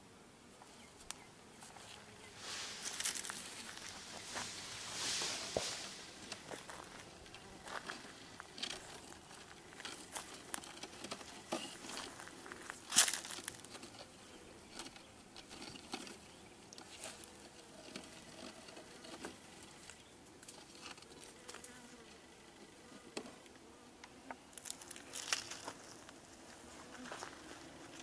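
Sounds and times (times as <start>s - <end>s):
bees buzzing: 0.0s - 20.4s.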